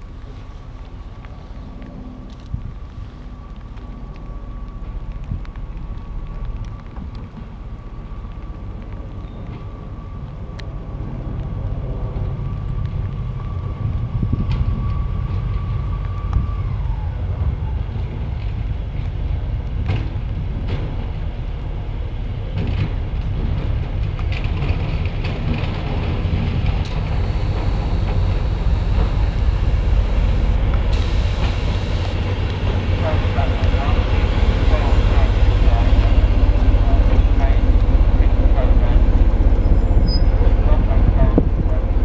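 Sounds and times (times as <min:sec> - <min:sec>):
diesel locomotive engine rumbling: 0:00.0 - 0:42.0
sharp clicks: 0:26.8 - 0:32.2
steady high tone: 0:26.9 - 0:32.2.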